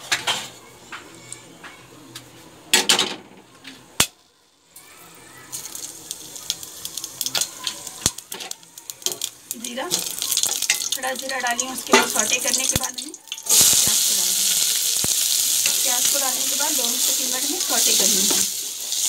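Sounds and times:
spices sizzling in hot oil: 3.9s - 19.0s.

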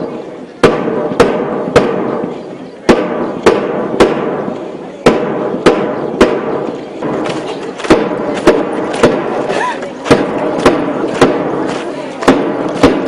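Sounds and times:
background hubbub: 0.0s - 13.0s
sharp percussive beats: 0.6s - 13.0s.

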